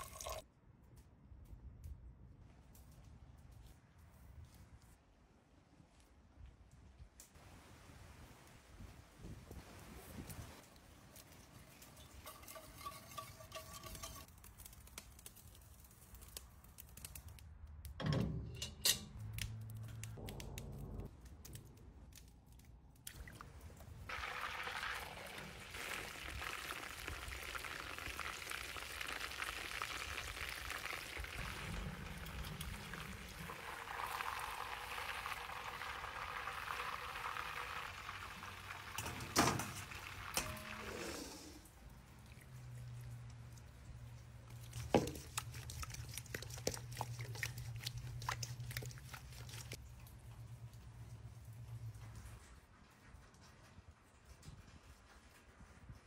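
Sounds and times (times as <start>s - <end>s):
wings deep-frying in hot oil: 0.0s - 0.5s, 10.6s - 17.4s, 23.1s - 51.9s.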